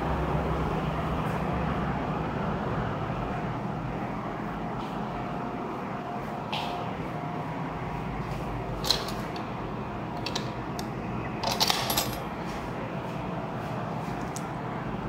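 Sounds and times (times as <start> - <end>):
steady low hum: 0.0 - 15.0
metal keys jangling: 11.4 - 12.2.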